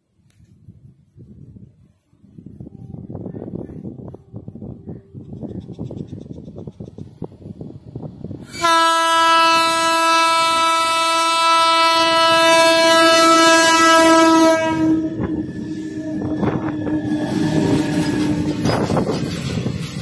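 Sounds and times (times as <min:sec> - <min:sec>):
freight train rumbling past: 0:02.3 - 0:20.0
locomotive horn blast: 0:08.5 - 0:18.8
train wheel clatter: 0:15.2 - 0:20.0.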